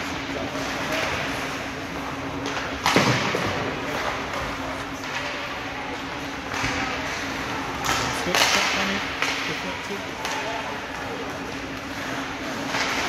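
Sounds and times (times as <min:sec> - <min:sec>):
arena background hum: 0:00.0 - 0:13.0
puck banging on boards: 0:02.4 - 0:04.4, 0:07.8 - 0:09.5.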